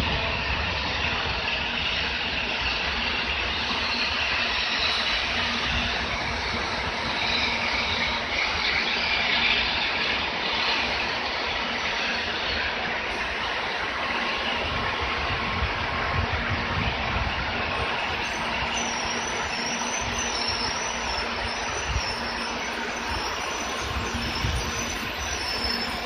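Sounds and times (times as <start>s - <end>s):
train running on rails: 0.0s - 26.0s.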